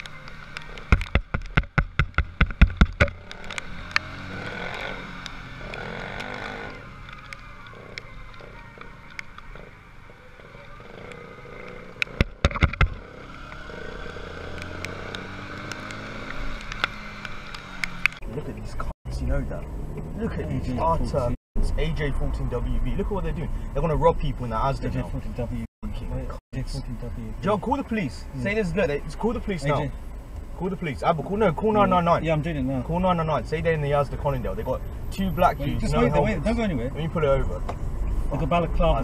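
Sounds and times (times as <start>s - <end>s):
motorcycle engine: 0.0s - 21.0s
loud thumps: 0.8s - 4.8s, 12.0s - 13.1s.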